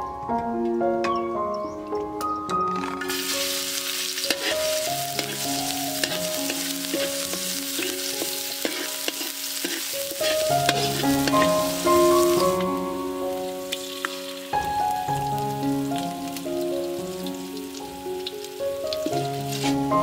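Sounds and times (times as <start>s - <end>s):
background music with held notes: 0.0s - 20.0s
garlic sizzling in hot oil: 2.9s - 20.0s
spatula scraping and tapping pan: 4.2s - 5.4s, 6.0s - 11.6s.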